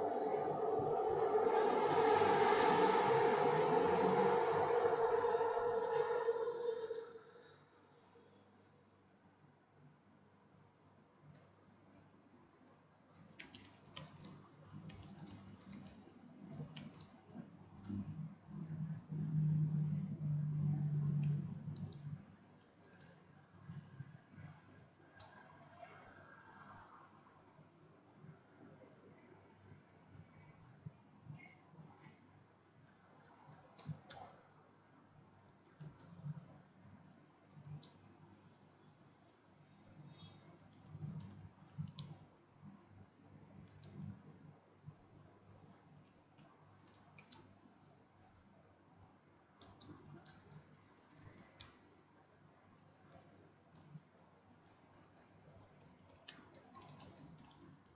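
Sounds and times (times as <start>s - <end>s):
computer keyboard typing: 12.6s - 18.8s, 21.2s - 23.2s, 33.2s - 34.4s, 35.4s - 36.6s, 37.4s - 38.1s, 40.7s - 42.3s, 43.5s - 44.2s, 46.4s - 47.5s, 49.6s - 51.8s, 53.1s - 57.9s.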